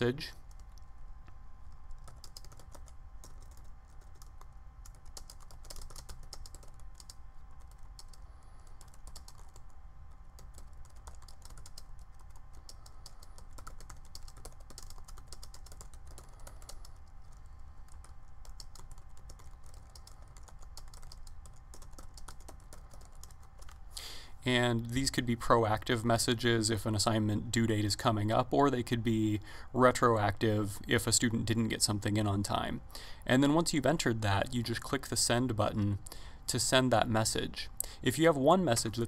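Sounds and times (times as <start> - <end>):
faint low hum: 0.0 - 39.0
typing on computer keyboard: 1.7 - 23.8.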